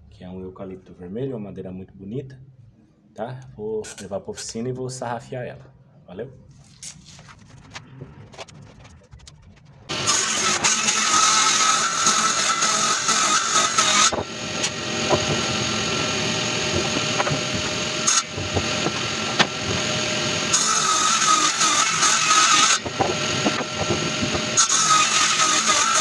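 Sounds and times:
table saw ripping wood: 9.9 - 26.0.

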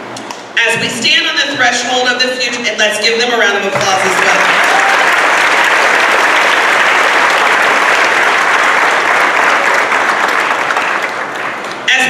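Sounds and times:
audience applauding: 3.8 - 11.9.

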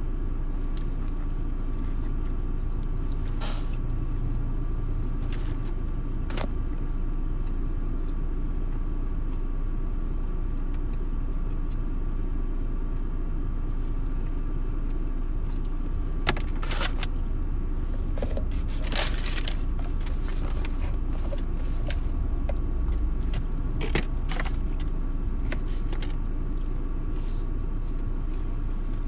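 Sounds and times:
car cabin rumble: 0.0 - 11.8, 12.7 - 29.0
food container clicks and rustles: 18.0 - 22.0.

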